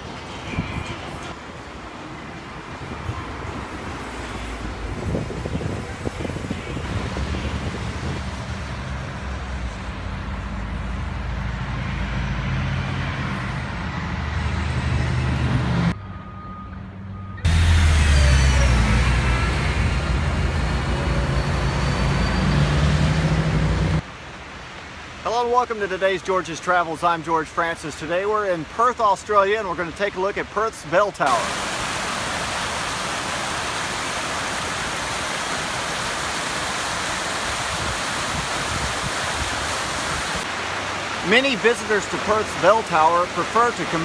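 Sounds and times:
city street traffic: 0.0s - 37.9s, 38.7s - 44.0s
heavy vehicle engine rumbling: 4.0s - 24.0s.

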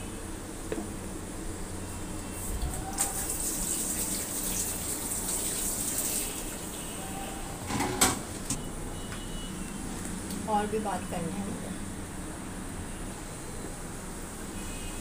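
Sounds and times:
water running: 2.8s - 7.0s.

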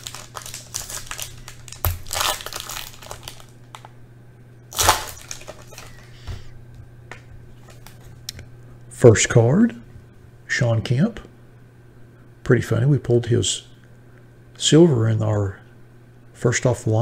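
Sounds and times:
foil wrapper tearing and crinkling: 0.0s - 3.9s, 4.7s - 6.1s.

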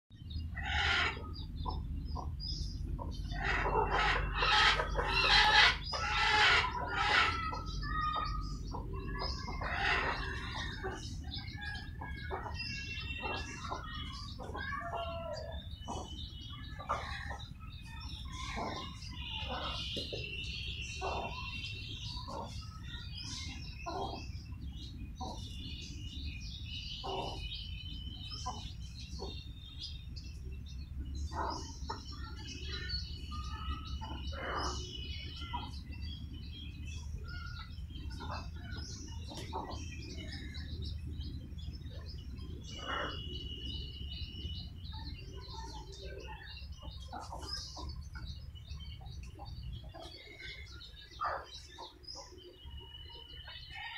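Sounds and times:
chicks peeping: 0.2s - 53.9s
hen clucking: 0.4s - 20.2s, 20.8s - 24.5s, 27.0s - 27.6s.

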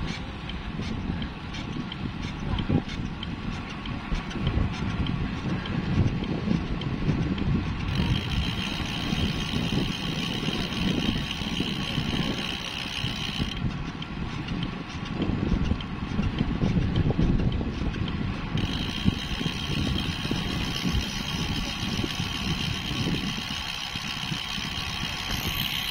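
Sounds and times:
road rumble: 0.0s - 25.9s
wind buffeting microphone: 0.0s - 25.9s
steady high buzz: 7.9s - 13.6s, 18.4s - 25.9s.

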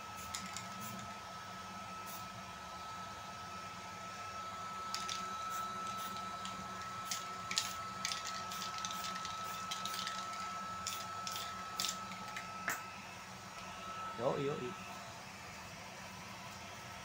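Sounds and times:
spray paint can hissing: 0.1s - 1.1s, 4.9s - 12.8s.

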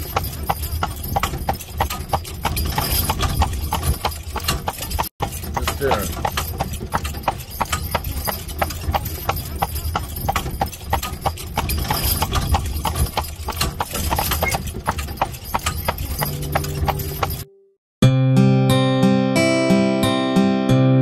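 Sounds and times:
carriage rumbling: 0.0s - 17.5s
horse hooves clip-clopping on road: 0.0s - 17.5s.

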